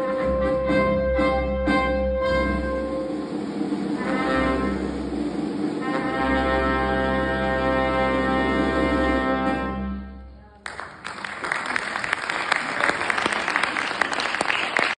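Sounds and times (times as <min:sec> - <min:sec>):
trombone and brass ensemble chord: 0:00.0 - 0:10.3
audience applause: 0:10.6 - 0:15.0.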